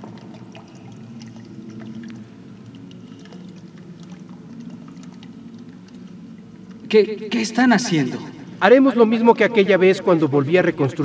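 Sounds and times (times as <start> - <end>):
liquid dripping: 0.0 - 7.4
low steady hum: 0.0 - 11.0.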